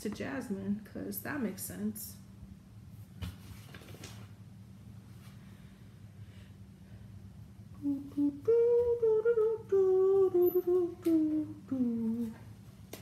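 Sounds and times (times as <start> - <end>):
low background hum: 0.0 - 13.0
woman humming a tune: 7.8 - 12.5.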